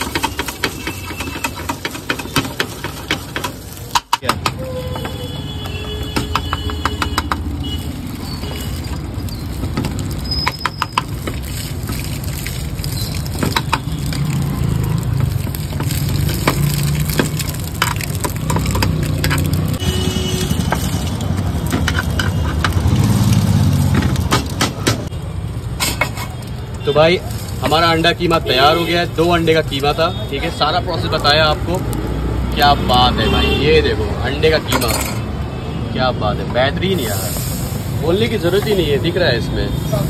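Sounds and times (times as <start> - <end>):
metal spatula scraping a pan: 0.0 - 3.8, 25.8 - 26.4
street traffic rumble: 0.0 - 40.0.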